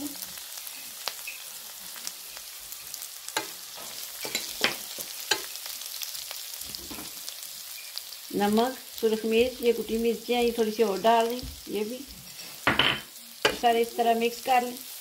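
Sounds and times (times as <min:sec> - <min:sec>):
chillies sizzling in hot oil: 0:00.0 - 0:15.0
spatula scraping and tapping pan: 0:03.3 - 0:05.6, 0:11.4 - 0:13.7.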